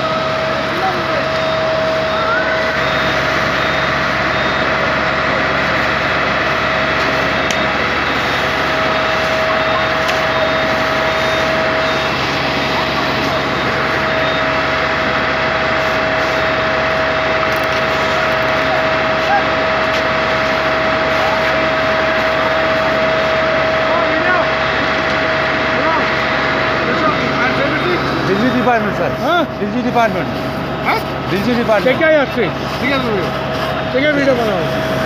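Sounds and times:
fire engine running: 0:00.0 - 0:35.0
steady tone: 0:00.0 - 0:35.0
faint repeating beep: 0:01.1 - 0:04.9, 0:08.4 - 0:12.3, 0:13.3 - 0:14.7.

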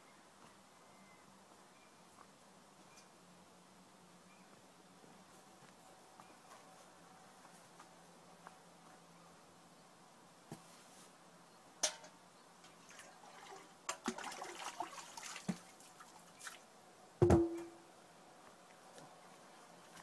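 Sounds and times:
metal pail clattering on wood: 0:11.8 - 0:12.1, 0:17.2 - 0:17.7
water splashing: 0:12.8 - 0:16.6
heavy thump with short ring: 0:17.2 - 0:17.7
sharp knock: 0:17.2 - 0:17.7.

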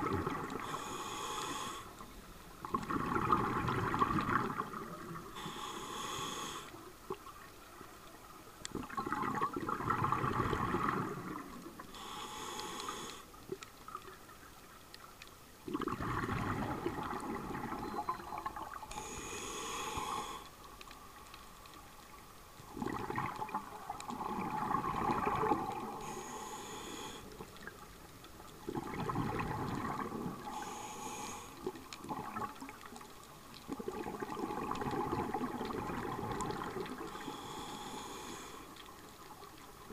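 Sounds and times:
bubbling exhale: 0:00.0 - 0:02.0, 0:02.6 - 0:06.8, 0:08.8 - 0:13.4, 0:15.7 - 0:20.6, 0:22.7 - 0:27.7, 0:28.7 - 0:32.6, 0:33.7 - 0:38.8
regulator hissing inhale: 0:00.6 - 0:02.4, 0:05.3 - 0:06.8, 0:11.9 - 0:13.4, 0:18.9 - 0:20.6, 0:25.9 - 0:27.5, 0:30.4 - 0:31.7, 0:37.0 - 0:38.9.

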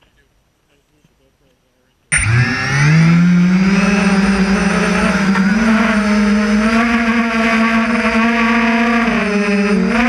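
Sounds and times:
drone motors whining: 0:02.1 - 0:10.0.

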